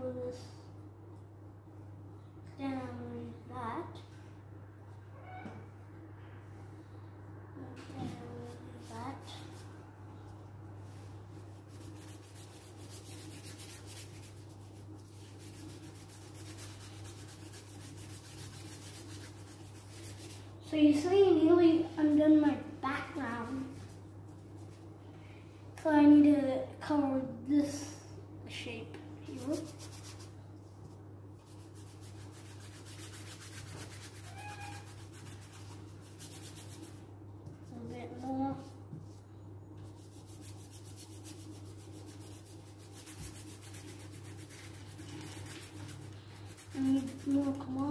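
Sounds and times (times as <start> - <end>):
low steady hum: 0.0 - 47.9
short squeak: 5.1 - 5.7
paintbrush scrubbing on paper: 8.4 - 9.8, 10.8 - 20.5, 23.5 - 24.9, 29.3 - 37.1, 39.8 - 47.9.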